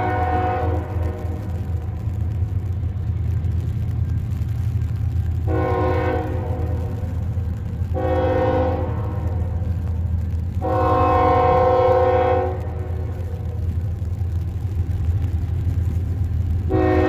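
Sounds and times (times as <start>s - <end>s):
locomotive air horn blasts: 0.0s - 1.6s, 5.4s - 7.1s, 7.9s - 9.6s, 10.6s - 13.1s, 16.7s - 17.0s
train low rumble: 0.0s - 17.0s.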